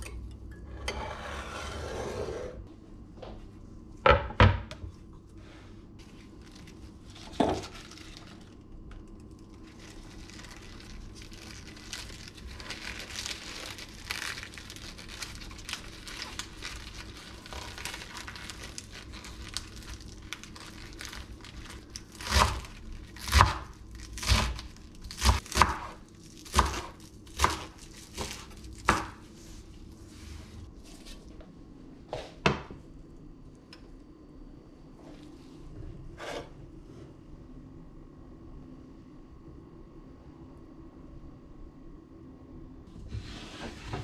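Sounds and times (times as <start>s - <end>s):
spinach leaves rustling: 9.7s - 23.3s.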